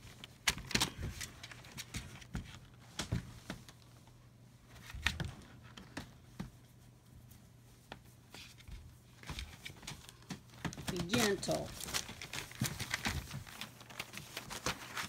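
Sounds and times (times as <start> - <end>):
animals rustling on newspaper: 6.6 - 15.0.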